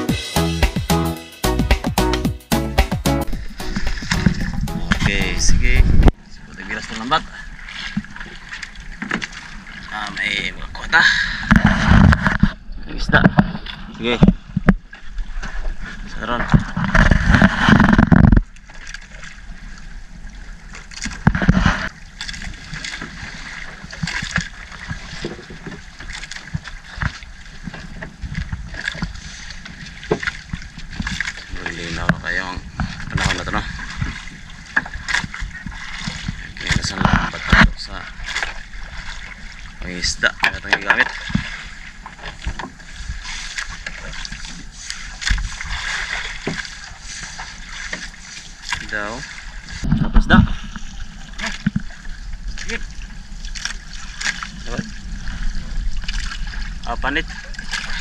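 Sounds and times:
water splashing and dripping: 2.6s - 10.5s, 18.2s - 58.0s
knocks against wooden hull: 2.8s - 6.2s, 23.9s - 38.6s, 40.3s - 42.8s, 46.2s - 46.7s.

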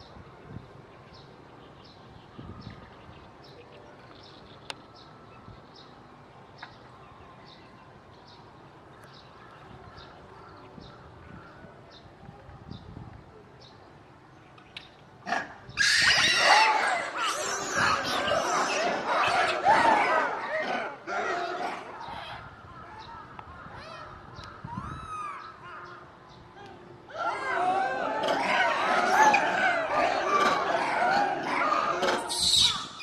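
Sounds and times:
low background noise: 0.0s - 33.0s
macaques screaming: 15.3s - 22.4s, 27.1s - 33.0s.

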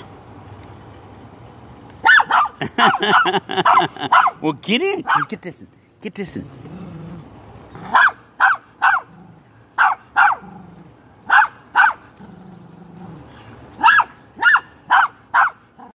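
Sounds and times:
small dog barking: 2.0s - 4.4s, 5.0s - 5.3s, 7.8s - 9.2s, 9.8s - 10.6s, 11.2s - 12.1s, 13.8s - 15.9s
dog growling: 6.4s - 8.0s, 9.0s - 9.6s, 10.3s - 11.0s, 12.2s - 13.5s.

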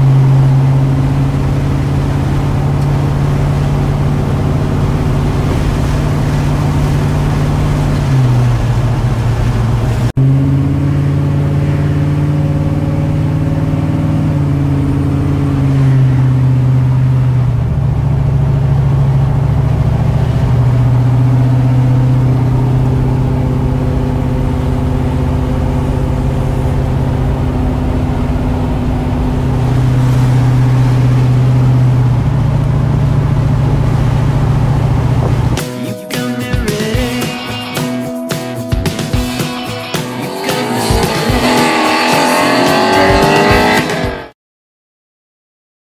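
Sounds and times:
tyre and road noise: 0.0s - 35.8s, 36.6s - 44.3s
truck engine running: 0.0s - 44.2s.

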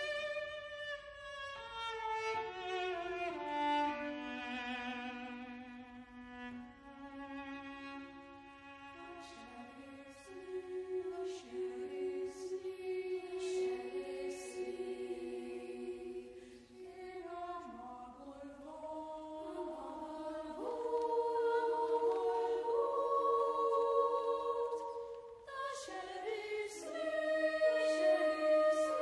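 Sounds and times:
boys choir singing: 10.4s - 29.0s.

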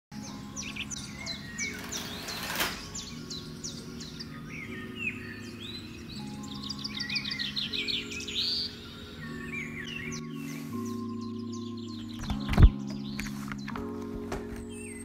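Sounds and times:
birds chirping: 0.1s - 15.0s
brief rustle: 1.7s - 3.1s.

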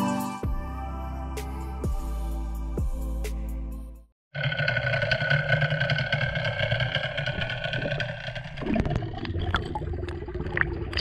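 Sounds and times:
outboard engine humming underwater: 4.3s - 11.0s
water splashing and sloshing: 4.8s - 11.0s.

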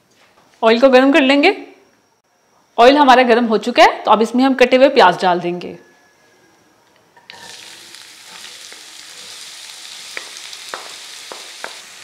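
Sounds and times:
onions sizzling in oil: 7.3s - 12.0s
wooden spatula knocking bowl: 10.1s - 11.9s.

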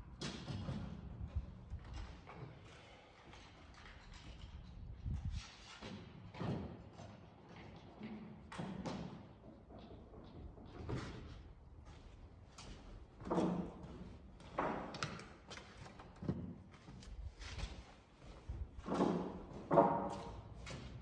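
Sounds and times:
tools and lumber knocking: 13.2s - 16.5s, 18.8s - 21.0s.

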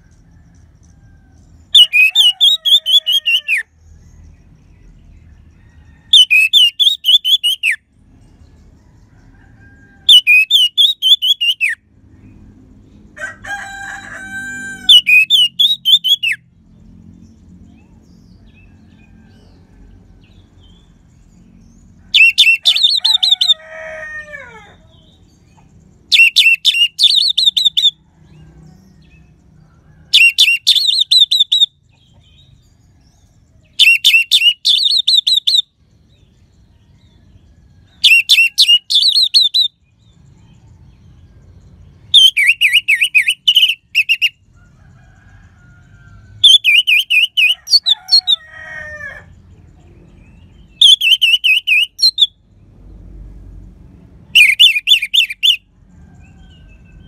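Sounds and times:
bird singing whistled notes: 6.2s - 7.8s, 10.0s - 11.8s, 14.9s - 16.4s, 22.2s - 23.5s, 26.1s - 28.0s, 30.1s - 32.2s, 33.8s - 35.7s, 38.0s - 40.0s, 42.1s - 44.4s, 46.4s - 48.4s, 50.2s - 52.4s, 54.4s - 55.6s.

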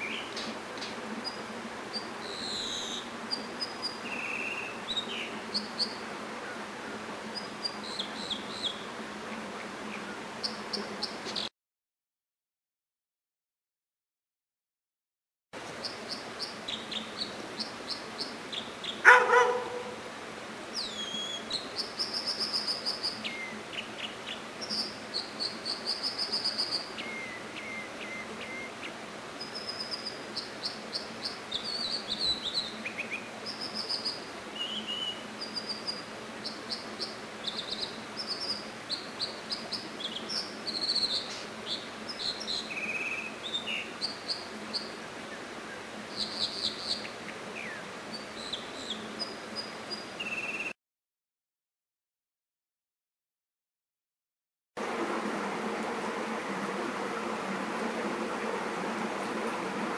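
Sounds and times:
bird song with trills: 1.2s - 6.0s, 7.3s - 8.9s, 20.8s - 45.0s, 46.1s - 50.7s.

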